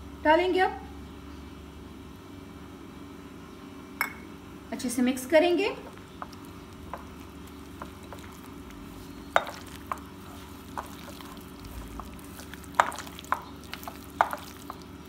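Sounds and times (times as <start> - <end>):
steady low hum: 0.0 - 15.0
raw chicken squelching by hand: 6.0 - 15.0.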